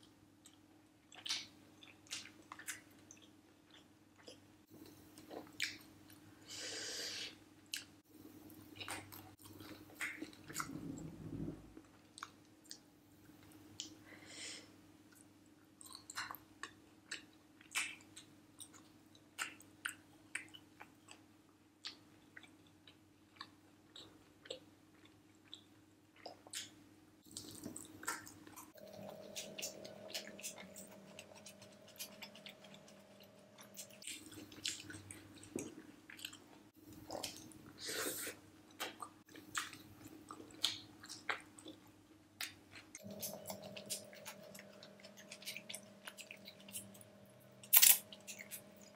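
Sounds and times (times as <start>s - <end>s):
faint hum: 1.6s - 19.5s, 27.3s - 48.9s
wet chewing and lip smacks: 21.8s - 37.6s, 38.7s - 48.9s.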